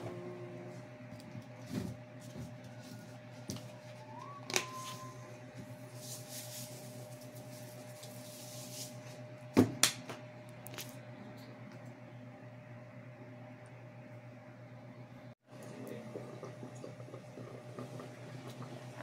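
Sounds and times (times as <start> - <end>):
brief whistle-like tone: 3.8 - 5.4.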